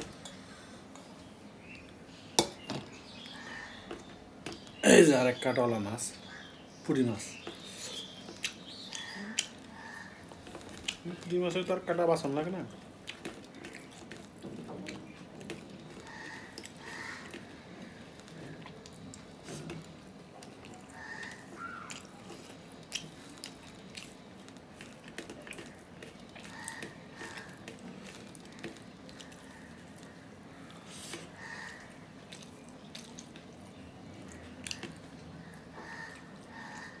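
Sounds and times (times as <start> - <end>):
wet chewing: 7.3 - 11.9, 12.7 - 37.0.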